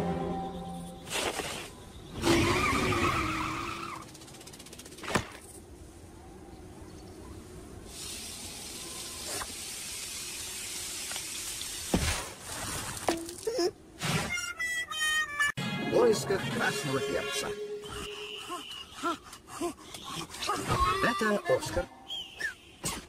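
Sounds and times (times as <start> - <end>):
cartoon truck squeal: 2.2 - 4.1, 14.1 - 15.6
steady hiss: 7.4 - 13.1.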